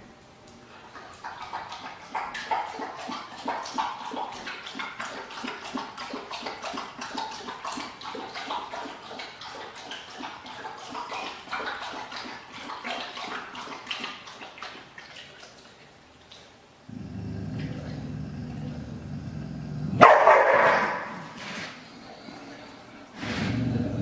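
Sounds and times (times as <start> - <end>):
animal licking and lapping: 0.8 - 16.6.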